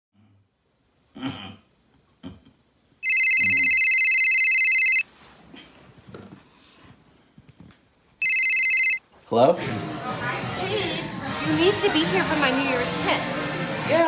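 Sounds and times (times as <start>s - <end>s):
smartphone trilling ringtone: 3.0s - 5.0s, 8.2s - 9.0s.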